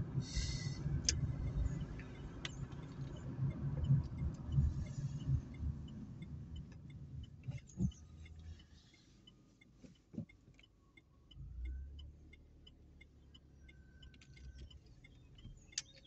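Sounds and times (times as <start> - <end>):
car engine idling: 0.0 - 16.0
turn signal ticking: 0.0 - 16.0.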